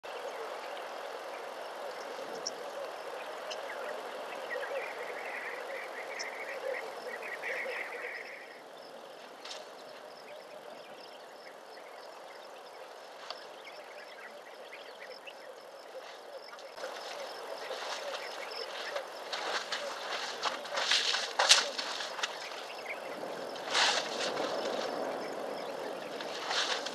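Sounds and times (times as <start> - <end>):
insects droning: 0.0 - 26.9
clicks and rustles: 16.8 - 22.7, 23.6 - 24.9, 26.1 - 26.9.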